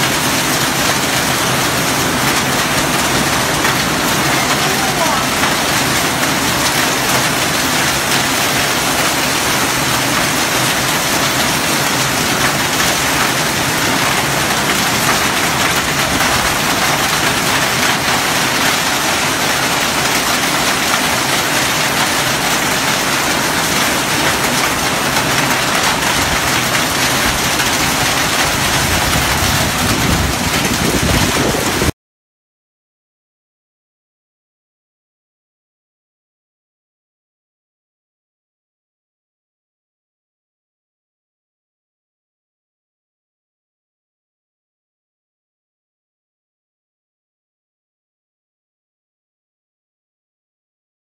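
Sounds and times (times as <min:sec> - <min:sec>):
heavy rain and hail on concrete: 0:00.0 - 0:32.0.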